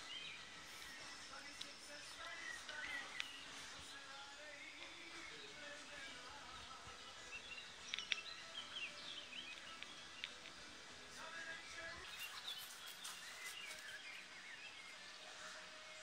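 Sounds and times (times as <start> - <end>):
small birds chirping: 0.0 - 16.0
faint clicks: 0.8 - 3.9, 7.8 - 8.8, 9.4 - 10.6.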